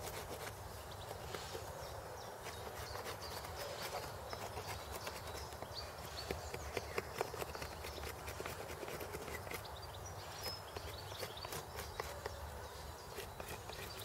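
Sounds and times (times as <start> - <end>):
stone scraping wood: 2.4 - 9.6, 10.4 - 12.4, 13.1 - 14.0.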